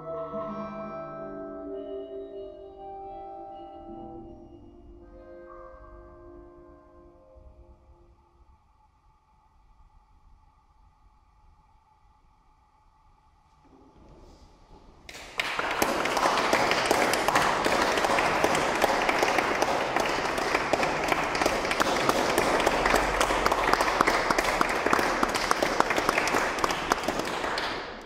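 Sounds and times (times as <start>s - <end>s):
audience applause: 15.1s - 28.0s.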